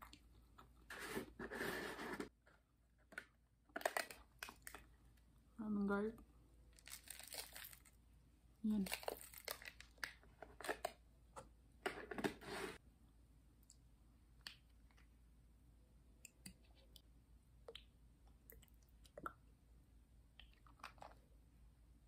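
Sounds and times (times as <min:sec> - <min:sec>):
tabletop rustling: 0:00.9 - 0:02.3, 0:12.1 - 0:12.8.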